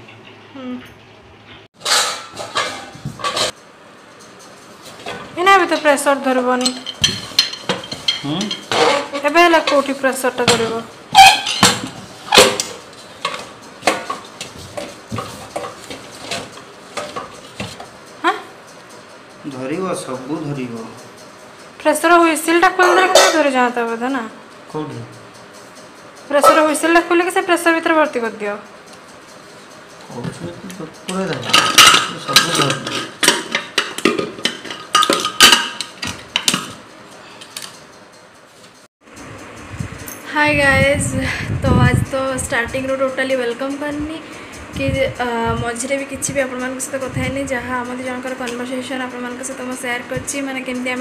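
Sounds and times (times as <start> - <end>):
metal pot clanking: 1.8 - 3.6, 6.6 - 17.8, 22.7 - 23.6, 31.0 - 36.8.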